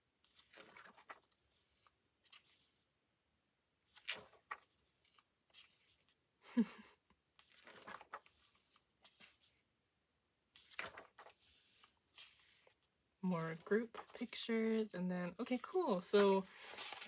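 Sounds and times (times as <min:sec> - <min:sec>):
paper pages turning: 0:00.2 - 0:02.9, 0:03.9 - 0:06.2, 0:07.4 - 0:09.7, 0:10.5 - 0:12.8, 0:13.4 - 0:14.8, 0:15.4 - 0:17.0.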